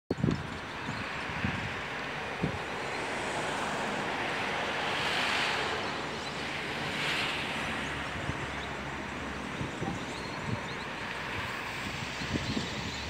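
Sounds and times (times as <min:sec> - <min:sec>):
wind hiss: 0:00.2 - 0:13.0.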